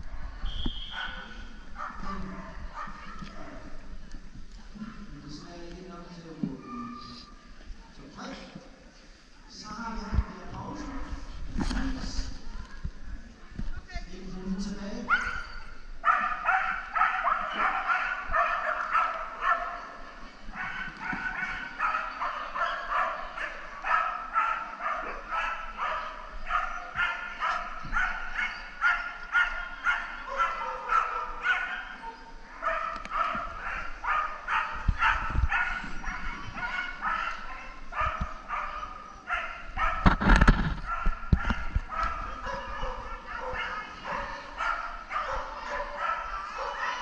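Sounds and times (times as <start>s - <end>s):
dog barking and yipping: 15.1s - 20.0s, 20.6s - 47.0s.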